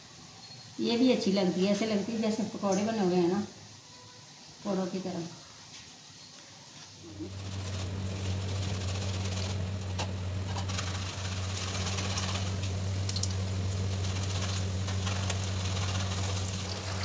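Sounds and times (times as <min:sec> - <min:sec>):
constant low hum: 0:07.0 - 0:17.0
deep-frying sizzle: 0:07.0 - 0:17.0.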